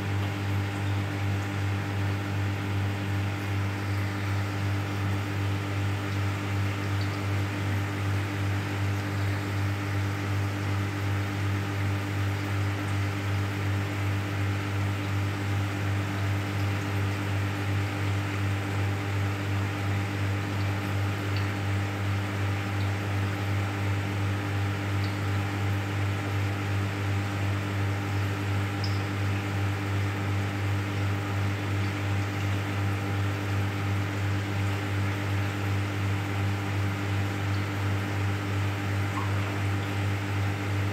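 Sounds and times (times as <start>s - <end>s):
aquarium pump humming: 0.0s - 40.9s.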